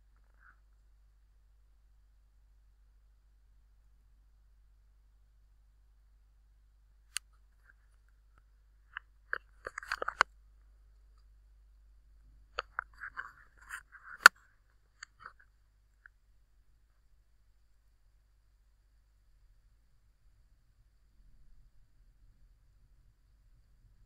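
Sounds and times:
mouse clicks: 8.9s - 10.3s, 12.6s - 14.4s.

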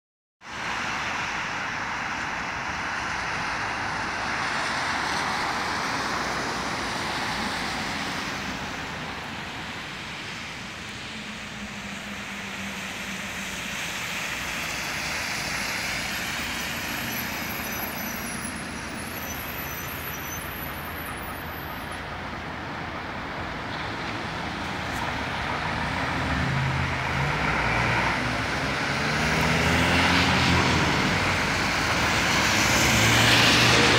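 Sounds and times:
coach diesel engine passing: 25.0s - 33.9s.

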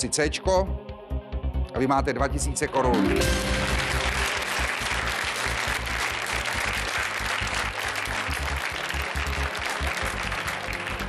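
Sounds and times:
low steady game show music: 0.0s - 11.0s
studio audience applauding: 3.0s - 11.0s.

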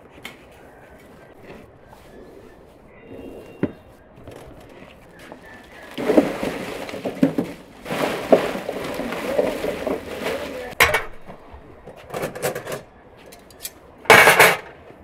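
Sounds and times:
dry pine branches crackling: 3.9s - 10.8s
pinecones tumbling into metal grill: 5.4s - 11.4s, 14.1s - 14.7s.

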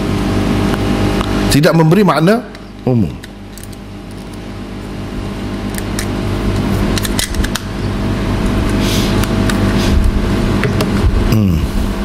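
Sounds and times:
engine drone: 0.0s - 12.0s.

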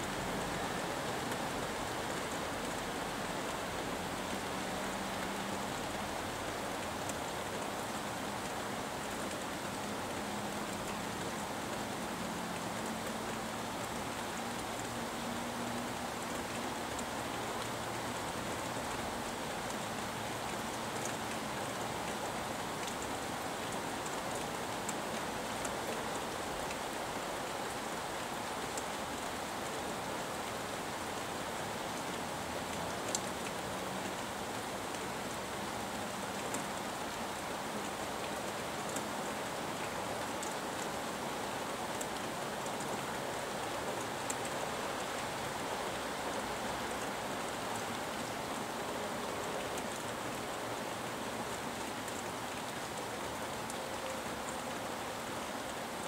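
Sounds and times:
rain falling: 0.0s - 56.0s
raindrops ticking: 32.6s - 45.2s.

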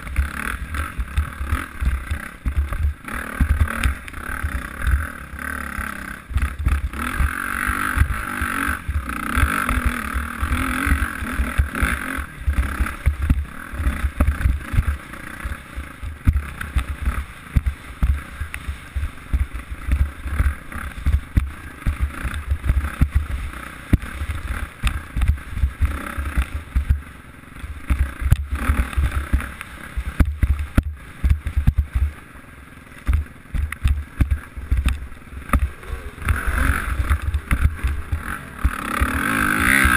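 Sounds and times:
dirt bike engine under load: 27.8s - 39.9s.

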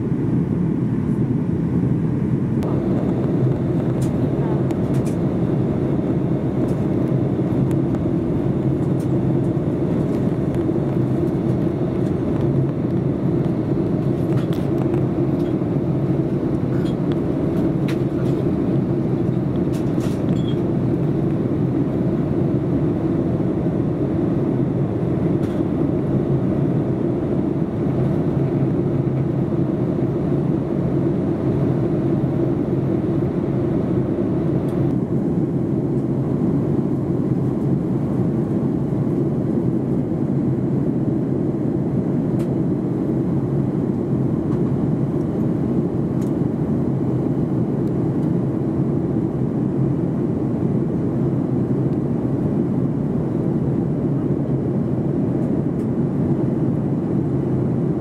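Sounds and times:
jet engine cabin rumble: 0.0s - 58.0s.

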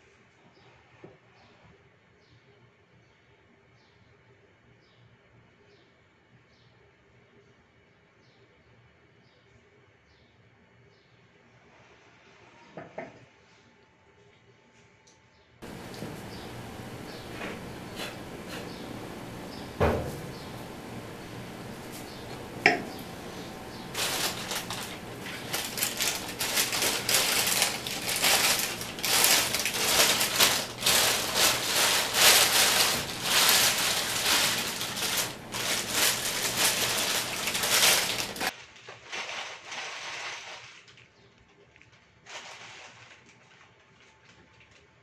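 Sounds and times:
plastic bag rustling: 15.6s - 45.0s.

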